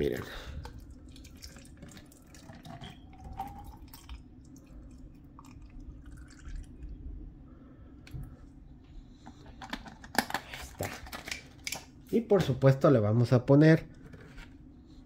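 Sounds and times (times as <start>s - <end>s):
liquid pouring into a glass: 0.7s - 7.0s.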